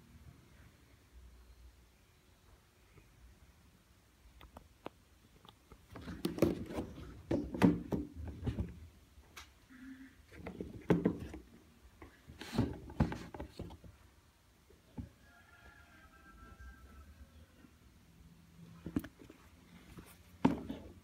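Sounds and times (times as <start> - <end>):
shoe handling rustling: 18.8 - 21.0.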